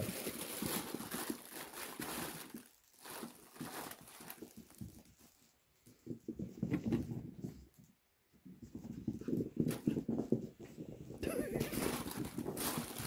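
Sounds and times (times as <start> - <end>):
small dogs scuffling on carpet: 3.2 - 13.0
rustling of blanket: 8.6 - 13.0.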